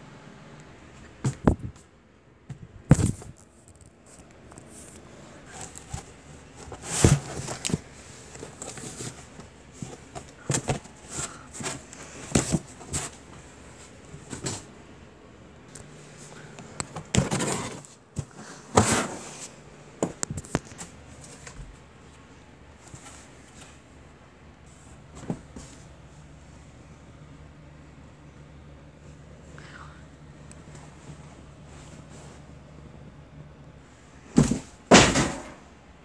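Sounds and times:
handling noise rustles and bumps: 0.9 - 14.8, 15.7 - 24.0, 24.6 - 26.6, 34.2 - 35.8.

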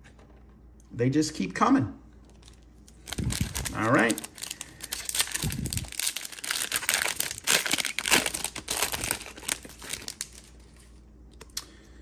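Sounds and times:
foil wrapper crinkling: 2.3 - 11.0.

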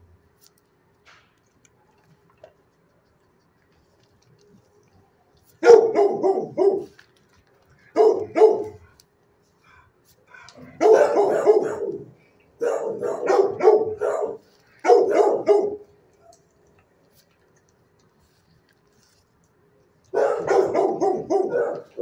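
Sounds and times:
dog barking: 5.6 - 7.0, 7.9 - 8.9, 10.6 - 15.9, 20.1 - 22.0.

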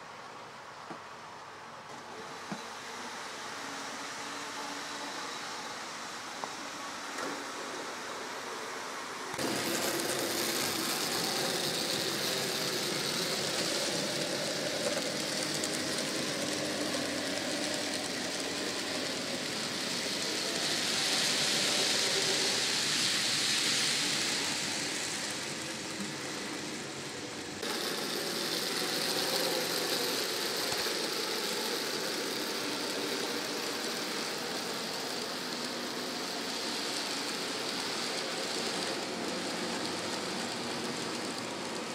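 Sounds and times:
model train wheels rattling: 9.4 - 41.9.

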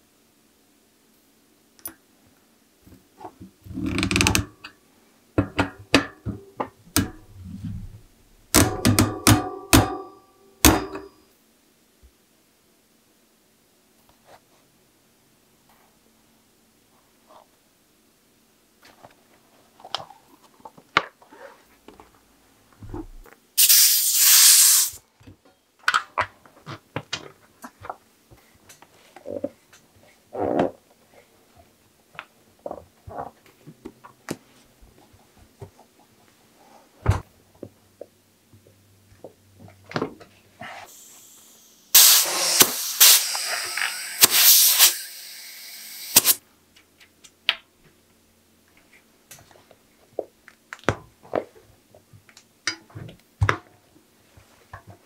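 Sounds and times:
clicks and rubbing of rubber tube: 3.2 - 4.6
air hissing from valve: 23.6 - 25.0, 40.9 - 46.4.

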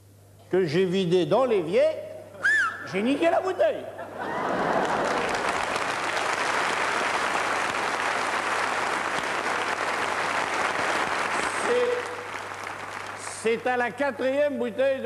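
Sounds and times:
audience applauding: 4.3 - 13.7.

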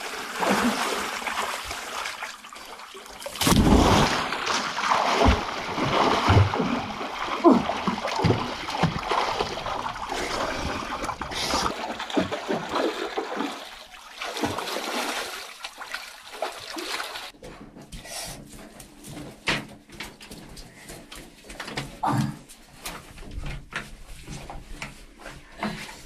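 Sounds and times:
water splashing in a pool: 0.0 - 17.4.

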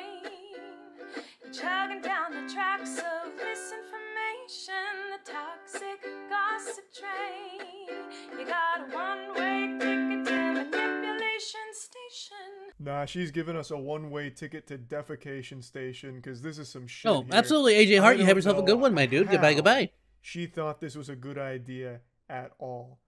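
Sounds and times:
woman singing: 0.0 - 12.7
ukulele strumming: 5.3 - 11.2.

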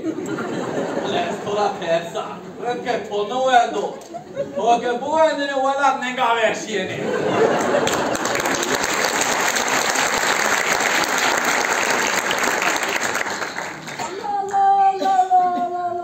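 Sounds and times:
audience applauding: 7.4 - 14.4
woman speaking: 14.1 - 16.0.

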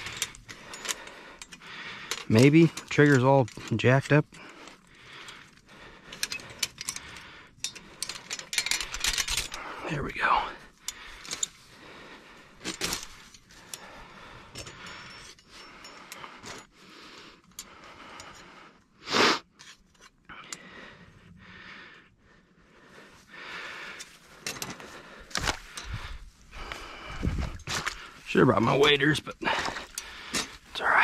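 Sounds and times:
metal trap chain clinking: 0.0 - 11.7, 12.4 - 16.8, 24.0 - 31.0
dry grass rustling underfoot: 24.1 - 30.9.

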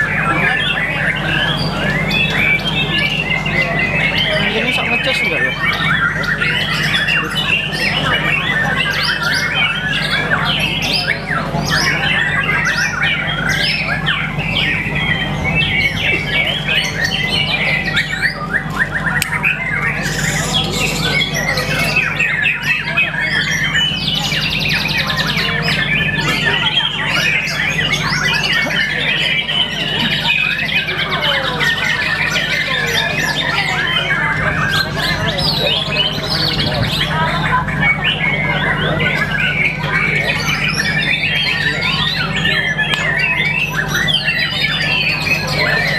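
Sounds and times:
bird singing whistles and trills: 0.0 - 45.9
steady low hum: 0.0 - 45.9.

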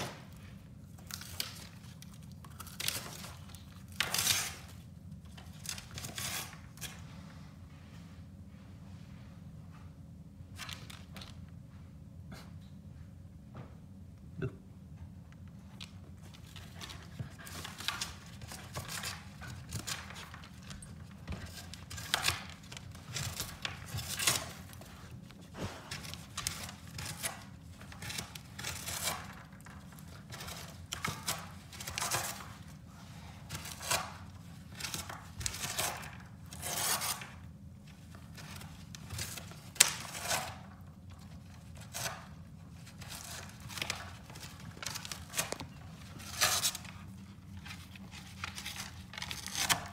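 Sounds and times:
dog chewing and ripping cardboard: 0.9 - 6.9, 16.2 - 49.9.

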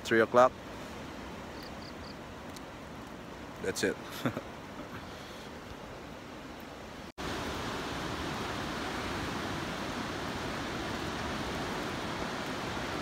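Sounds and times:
ocean waves breaking: 7.0 - 13.0.

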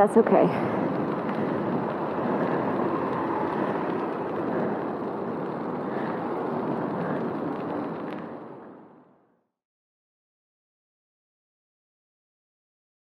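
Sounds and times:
motor traffic: 0.0 - 8.6
bicycle tyre and wind noise: 0.0 - 9.6.

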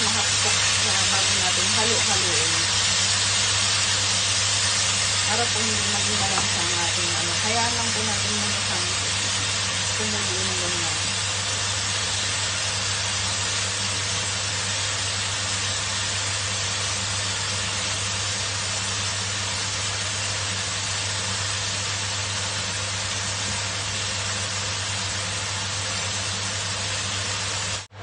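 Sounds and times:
chicken sizzling in a wok: 0.0 - 28.0.

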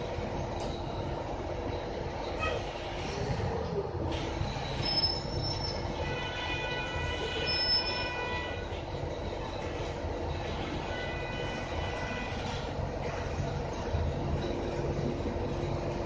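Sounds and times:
bus engine and road rumble: 0.0 - 16.0
high-pitched metallic squealing: 4.1 - 12.7.

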